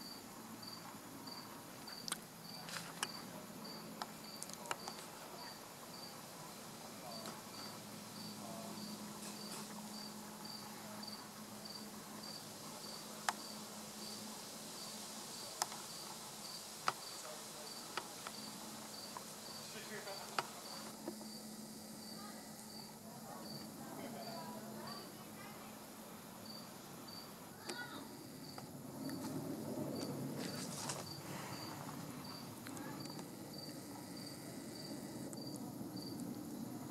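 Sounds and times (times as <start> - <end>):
cricket chirping: 0.0 - 25.8, 26.4 - 36.9.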